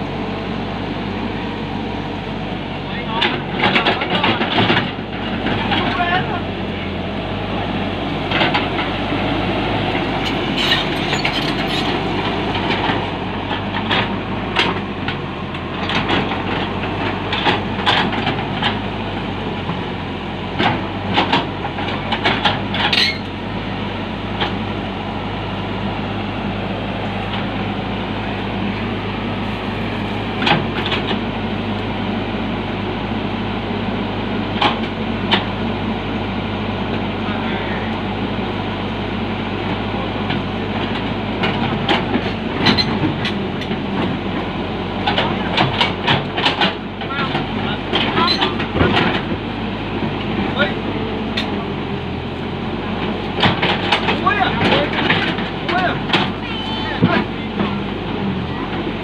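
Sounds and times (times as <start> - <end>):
excavator diesel engine running: 0.0 - 59.0
sharp knocks and clanks: 3.2 - 6.2, 8.3 - 8.9, 10.2 - 18.8, 20.6 - 23.3, 45.0 - 49.4, 53.4 - 57.8.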